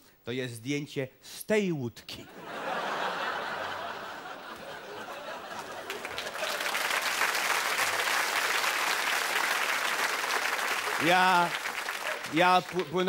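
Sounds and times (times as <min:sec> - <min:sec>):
audience applause: 0:02.8 - 0:13.0.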